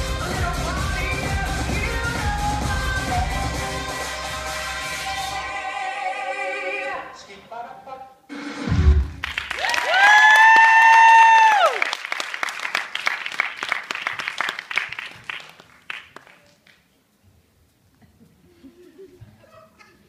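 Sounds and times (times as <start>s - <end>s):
audience applauding: 9.2s - 16.8s.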